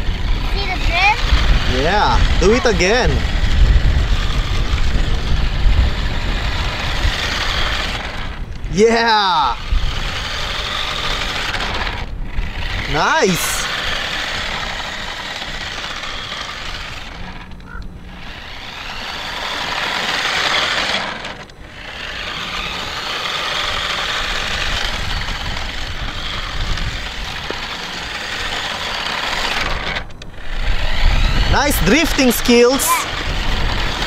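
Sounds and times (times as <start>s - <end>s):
small electric motor whirring: 0.0s - 34.0s
tyres scrubbing on asphalt: 9.6s - 34.0s.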